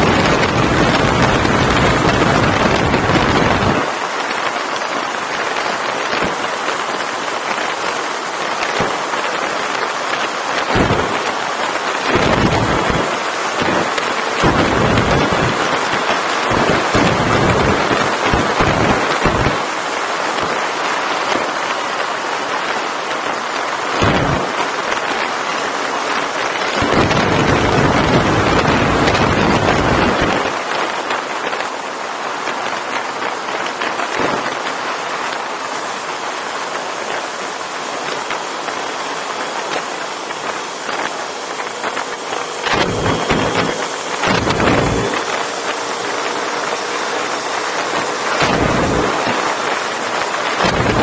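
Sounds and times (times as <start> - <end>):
motorcycle engine: 0.0 - 30.6, 35.6 - 51.0
wind rushing over microphone: 0.0 - 51.0.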